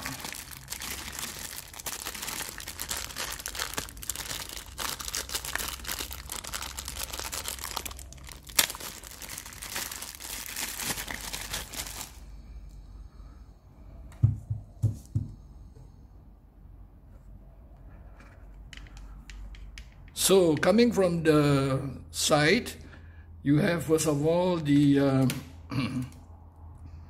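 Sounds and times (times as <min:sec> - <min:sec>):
plastic bag crinkling: 0:00.0 - 0:12.3.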